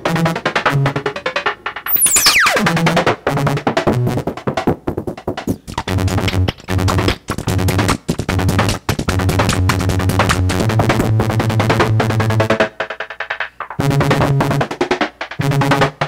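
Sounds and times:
synth downward pitch sweep: 1.9 - 2.8
synthesizer rhythmic pattern: 1.9 - 3.0.

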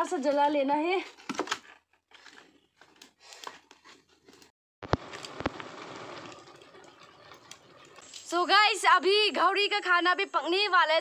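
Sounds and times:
fire popping: 4.8 - 8.6
wood fire hissing: 4.9 - 8.5.

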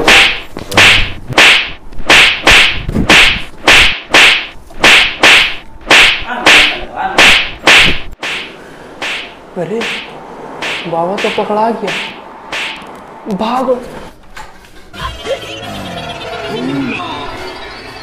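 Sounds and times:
whip lashes cracking: 0.0 - 12.8.

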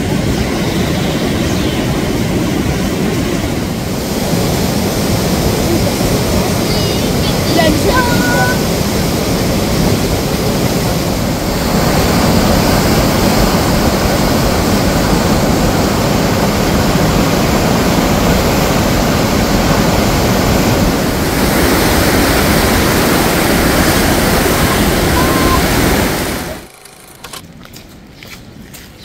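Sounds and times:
floodwater river rushing: 0.0 - 27.3.

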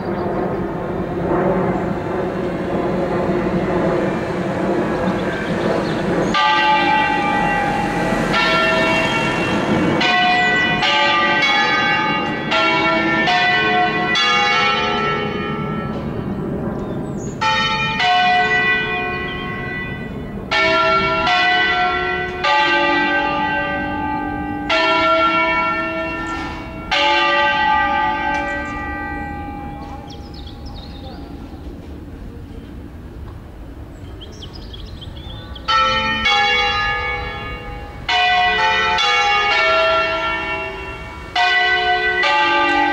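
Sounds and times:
low rumble: 0.0 - 10.8
church bells ringing: 0.0 - 31.9, 34.2 - 42.9.

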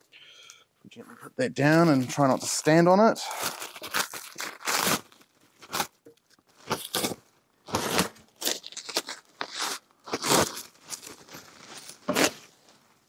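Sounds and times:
bubble wrap crinkling and tearing: 1.6 - 12.8.

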